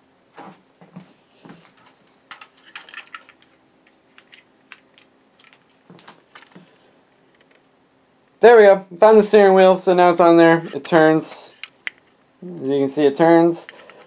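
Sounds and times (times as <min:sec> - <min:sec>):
plastic bricks clicking and rattling: 0:02.3 - 0:05.6.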